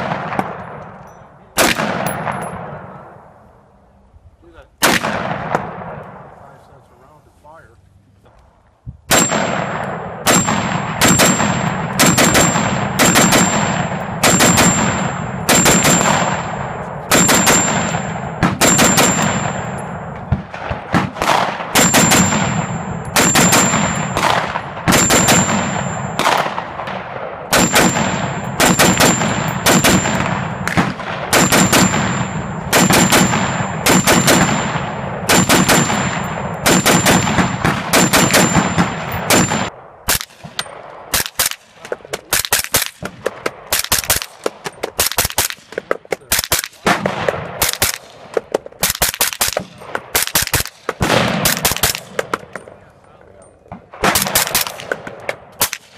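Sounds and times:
rifle shots: 0.0 - 3.3, 4.8 - 6.3, 9.1 - 52.7, 53.8 - 55.9.

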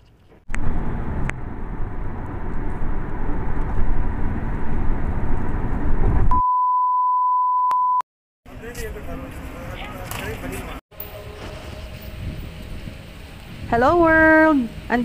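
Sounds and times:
car road and engine rumble: 0.0 - 6.3
high-pitched test-tone beep: 6.3 - 8.0.

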